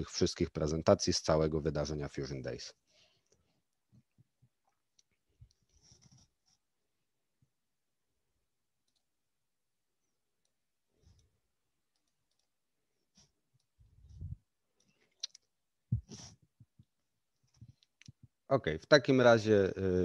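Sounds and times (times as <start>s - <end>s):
faint clicks and soft knocks: 10.4s - 12.6s, 13.5s - 18.4s.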